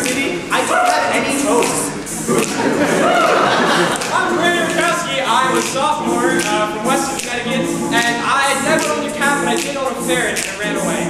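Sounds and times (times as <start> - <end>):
sharp clicks keeping time: 0.0 - 3.1, 3.7 - 11.0
male a cappella group singing: 0.0 - 11.0.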